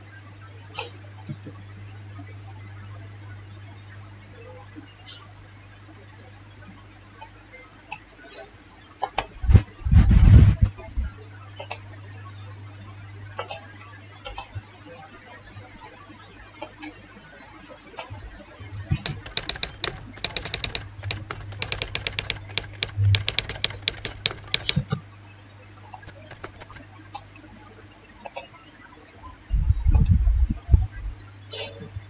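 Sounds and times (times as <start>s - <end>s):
keyboard key clicks: 19.1s - 24.8s, 26.1s - 26.8s
mouse clicks: 19.1s - 24.8s, 26.1s - 26.8s.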